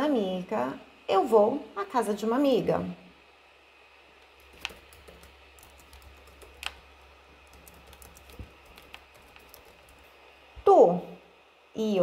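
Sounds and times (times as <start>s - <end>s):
keyboard typing: 4.3s - 10.1s.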